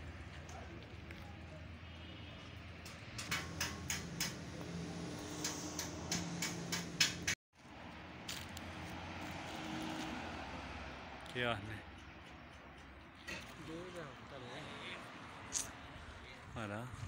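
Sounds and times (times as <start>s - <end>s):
sharp clicks and knocks: 2.8s - 4.5s, 5.3s - 7.4s.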